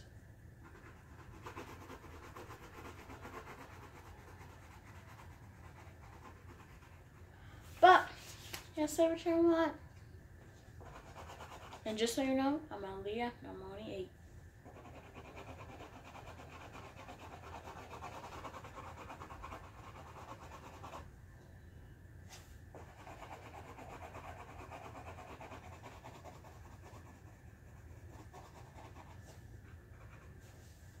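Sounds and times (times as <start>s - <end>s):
coloring strokes on paper: 0.6s - 7.3s, 10.8s - 12.0s, 14.6s - 21.1s, 22.3s - 31.0s.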